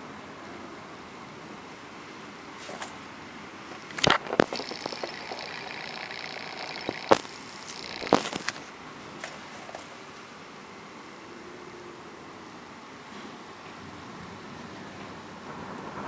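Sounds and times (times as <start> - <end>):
steady background hiss: 0.0 - 16.0
faint high whine: 4.0 - 8.7.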